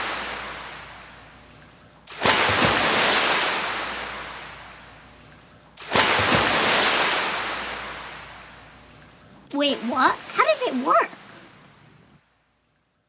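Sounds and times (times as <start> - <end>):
ocean waves breaking on shore: 0.0 - 1.5, 2.1 - 5.1, 5.8 - 8.9, 9.5 - 12.0.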